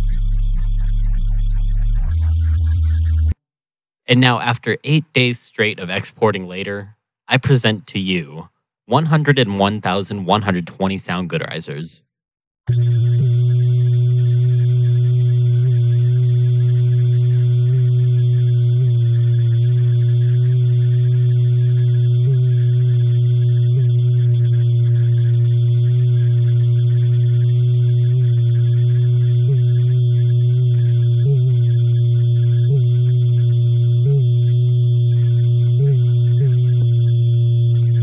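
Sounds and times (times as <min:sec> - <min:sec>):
loud low drone with hiss: 0:00.0 - 0:03.2.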